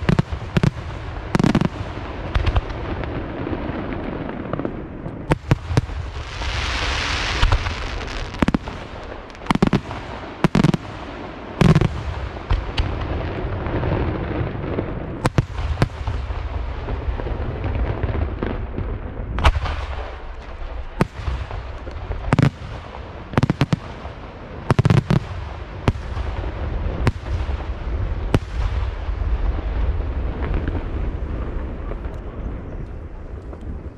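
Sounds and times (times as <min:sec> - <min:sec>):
firework bangs: 0:00.0 - 0:33.9
hissing crackle: 0:03.9 - 0:13.6.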